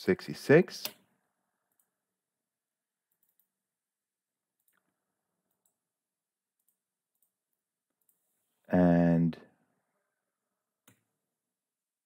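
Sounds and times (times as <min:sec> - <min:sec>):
computer mouse clicks: 0:03.1 - 0:03.6, 0:04.6 - 0:05.8.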